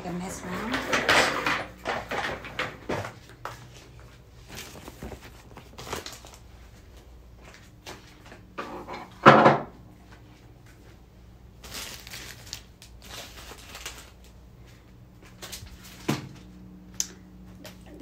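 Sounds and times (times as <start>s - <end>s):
rustling and scraping: 0.2s - 9.2s.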